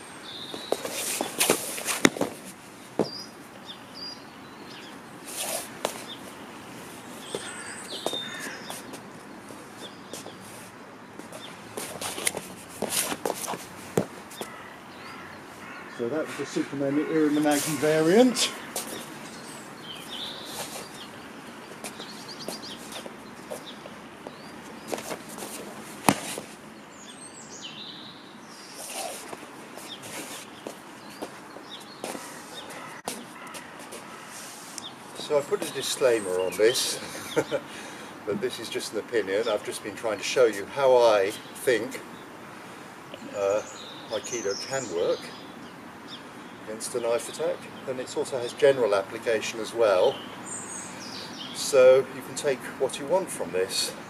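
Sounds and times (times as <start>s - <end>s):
birds chirping: 0.0s - 54.0s
steady outdoor hiss: 0.0s - 54.0s
feet scuffing on mats: 0.4s - 3.2s, 5.2s - 14.6s, 17.4s - 19.2s, 19.8s - 26.6s, 28.8s - 35.8s
body slapping onto foam mat: 0.6s - 2.4s, 24.9s - 26.5s
body thudding on mats: 26.0s - 26.4s.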